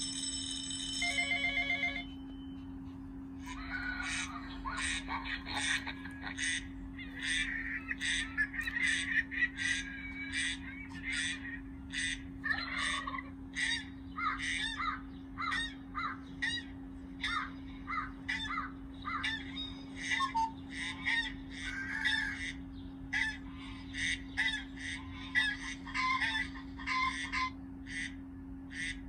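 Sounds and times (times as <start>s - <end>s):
steady low hum: 0.0s - 29.0s
recorded bird calls through speaker: 3.4s - 29.0s.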